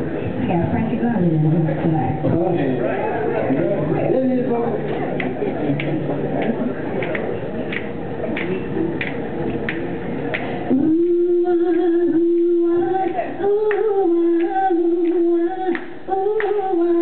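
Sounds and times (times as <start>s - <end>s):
background noise: 0.0s - 17.0s
a cappella group singing: 10.7s - 17.0s.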